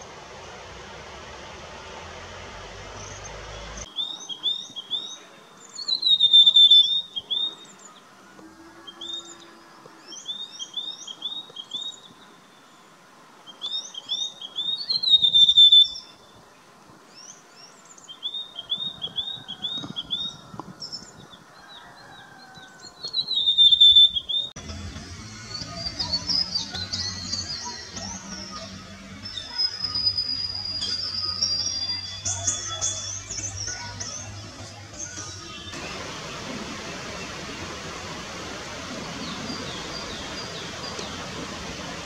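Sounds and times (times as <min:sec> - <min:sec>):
bird whistling calls: 0:05.8 - 0:07.8, 0:13.5 - 0:16.2, 0:23.1 - 0:24.5.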